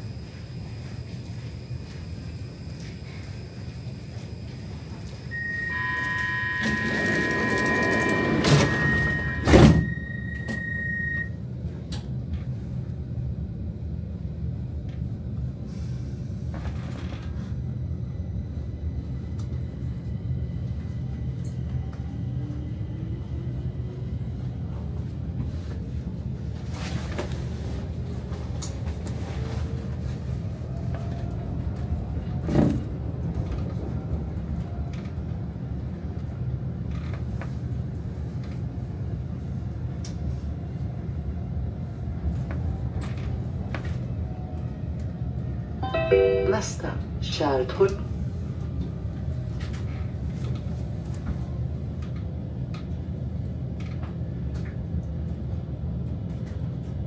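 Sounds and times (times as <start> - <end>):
train motor whine: 0.0 - 11.3
train rumbling: 0.0 - 57.0
door-closing warning tones: 4.9 - 11.4, 45.8 - 46.8
train doors thudding shut: 6.6 - 10.7.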